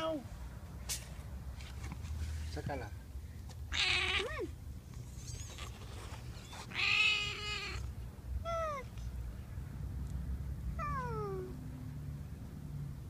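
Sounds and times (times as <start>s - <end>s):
kitten mewing: 3.7s - 9.0s, 10.8s - 11.6s.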